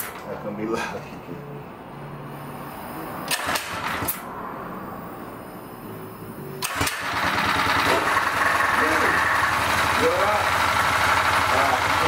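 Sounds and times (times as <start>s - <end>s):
engine pull-start: 3.3s - 4.3s, 6.6s - 12.0s.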